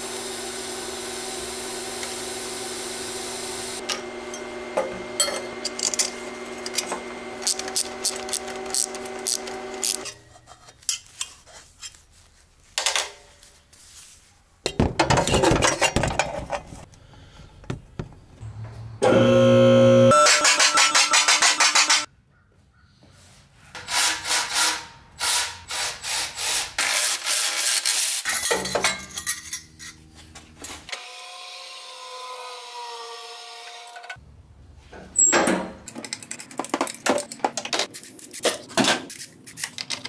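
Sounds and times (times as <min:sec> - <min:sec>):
electric pump motor hum: 0:00.0 - 0:10.1, 0:19.0 - 0:20.2
welding arc buzzing: 0:00.0 - 0:10.2
metal parts clinking and rattling: 0:05.2 - 0:11.4, 0:14.7 - 0:16.9, 0:27.9 - 0:30.0, 0:35.2 - 0:40.0.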